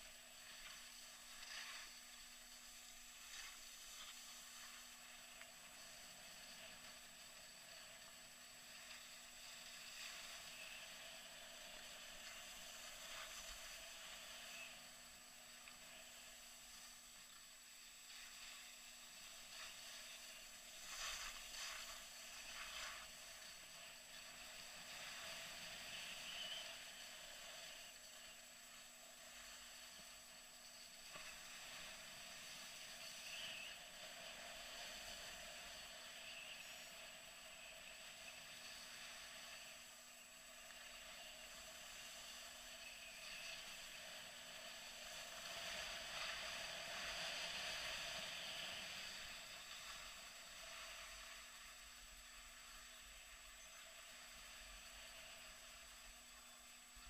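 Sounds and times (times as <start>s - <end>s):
skis scraping on packed snow: 0.0s - 5.9s, 17.8s - 26.8s
low electronic hum: 0.0s - 57.0s.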